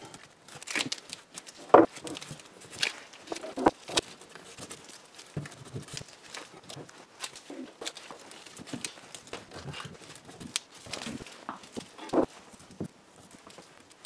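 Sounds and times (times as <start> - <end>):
cloth rustling: 0.0 - 14.0.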